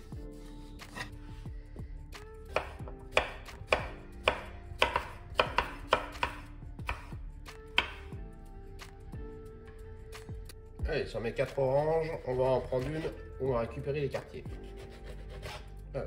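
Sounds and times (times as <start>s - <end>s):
knife chopping on cutting board: 2.5s - 7.2s, 7.8s - 8.1s, 14.2s - 15.7s.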